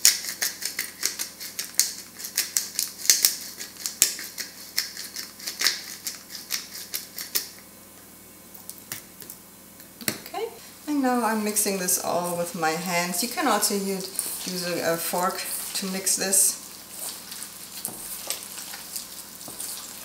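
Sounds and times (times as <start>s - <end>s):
pepper mill grinding: 0.0s - 7.6s, 13.2s - 20.0s.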